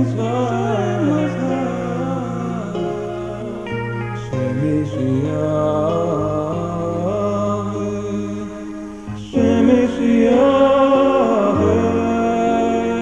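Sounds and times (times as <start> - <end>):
chanted mantra-like vocal: 0.0 - 13.0.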